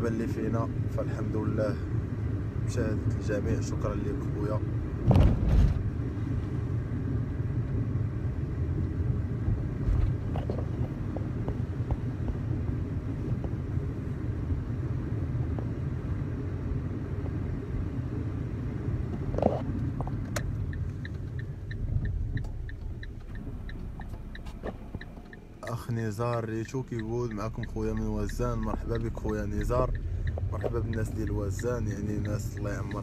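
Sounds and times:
road and engine rumble: 0.0 - 33.0
regular ticking: 19.7 - 33.0.

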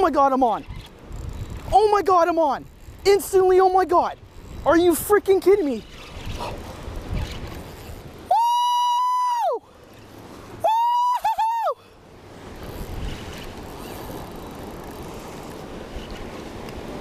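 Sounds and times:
wind noise on microphone: 0.0 - 8.3, 12.3 - 17.0
person yelling excitedly: 8.3 - 9.6, 10.6 - 11.8.

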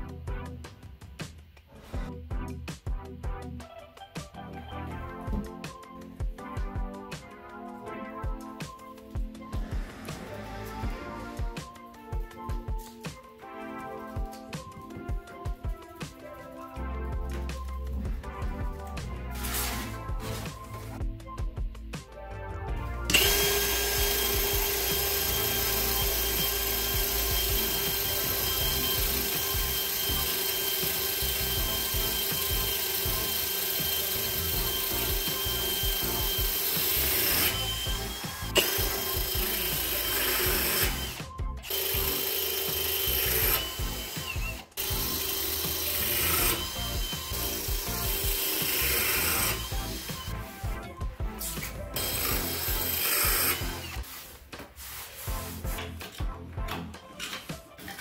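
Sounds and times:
cordless drill boring into tile: 23.1 - 50.5, 52.0 - 54.1.

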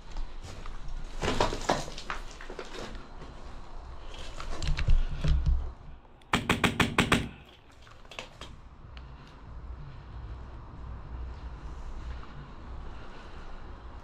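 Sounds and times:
knocks and rustling over rubble: 0.0 - 5.7, 7.4 - 8.6
airsoft rifle firing burst: 6.3 - 7.5.

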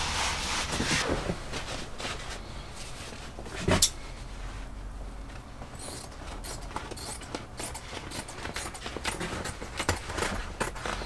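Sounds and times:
stiff fabric rustling: 0.0 - 4.8.

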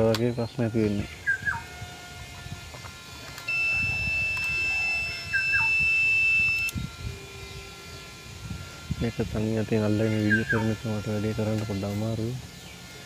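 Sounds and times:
multimeter continuity beep: 3.3 - 6.9.

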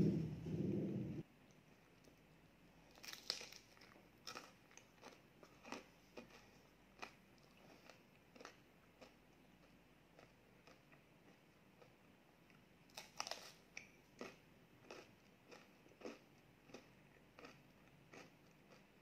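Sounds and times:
crunching ice cream cone: 2.9 - 9.2, 12.9 - 19.0.

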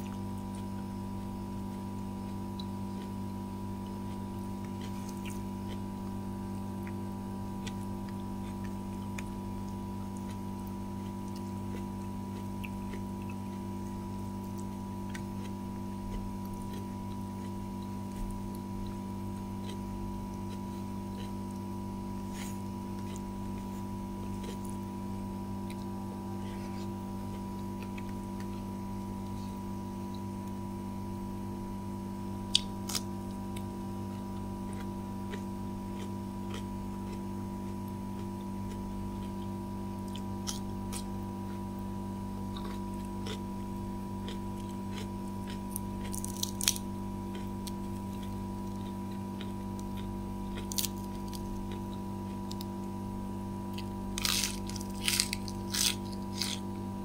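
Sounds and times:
steady background hum: 0.0 - 57.0
crisp food crunching: 22.3 - 24.8, 42.5 - 43.5, 44.2 - 52.9, 53.6 - 56.8.

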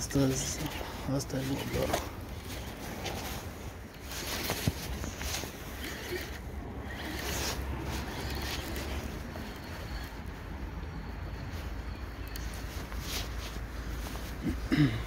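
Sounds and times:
fishing reel whirring: 3.9 - 11.2.

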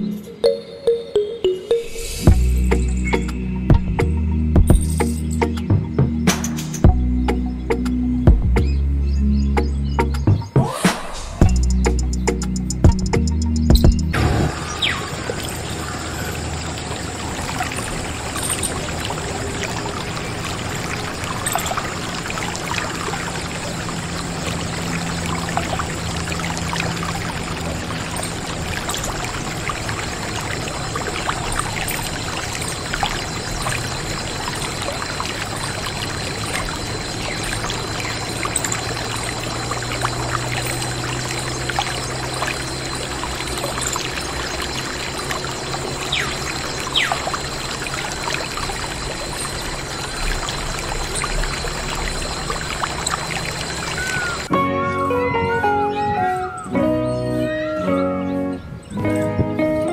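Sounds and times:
water splashing into puddle: 14.2 - 54.5.

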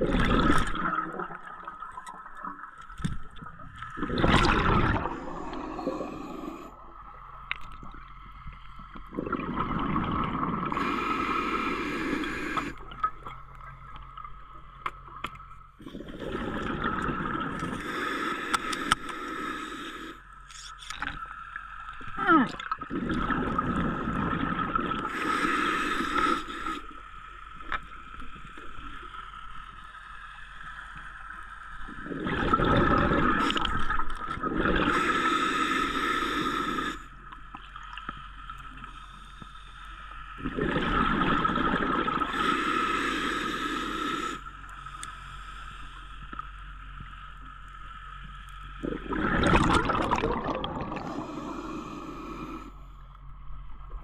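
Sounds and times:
bubbling exhale: 4.0 - 6.8, 9.1 - 12.9, 15.8 - 20.2, 22.2 - 26.9, 32.0 - 37.1, 40.4 - 44.5, 48.8 - 52.8
hissing regulator inhale: 5.0 - 6.8, 10.6 - 12.8, 17.6 - 20.4, 25.0 - 27.2, 34.6 - 37.3, 42.1 - 46.4, 50.2 - 53.1.

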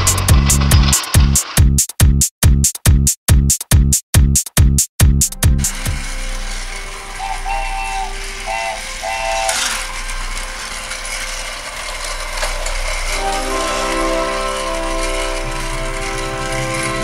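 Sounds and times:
toy train motors whirring: 0.0 - 1.9, 5.4 - 17.0
short tones: 5.7 - 17.0.

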